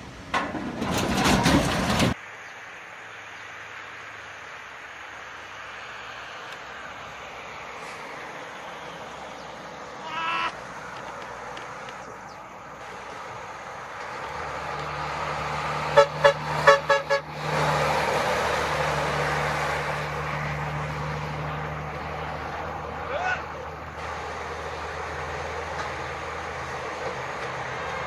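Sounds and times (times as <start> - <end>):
road noise: 0.0 - 28.0
truck engine humming: 3.7 - 28.0
vehicle horn toots: 15.9 - 17.4.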